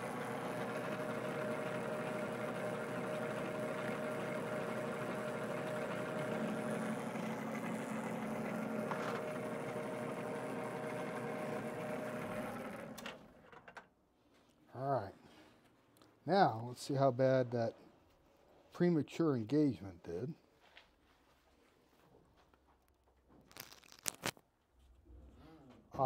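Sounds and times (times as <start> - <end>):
metal lathe humming: 0.0 - 13.4.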